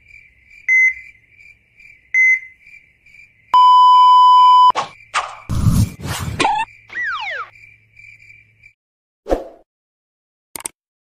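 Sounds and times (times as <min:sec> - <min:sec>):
heart monitor beeps: 0:03.6 - 0:04.7.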